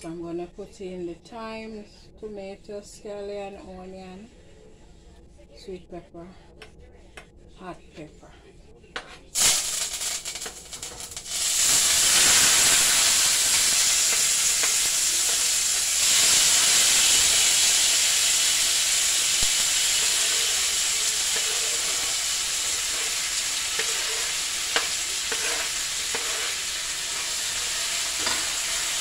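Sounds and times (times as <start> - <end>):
vegetables sizzling in hot oil: 9.4 - 29.0.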